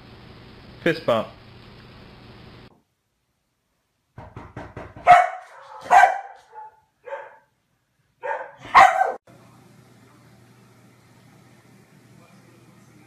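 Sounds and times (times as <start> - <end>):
dog barking: 5.0 - 7.5, 8.2 - 9.2.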